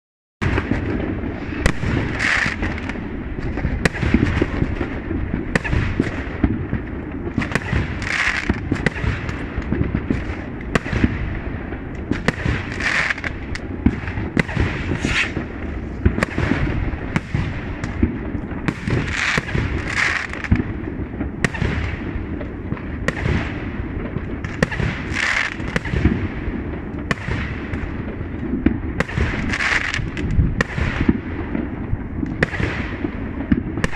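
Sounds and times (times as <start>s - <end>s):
fireworks bangs and crackles: 0.4s - 33.9s
continuous low rumble: 0.5s - 33.9s.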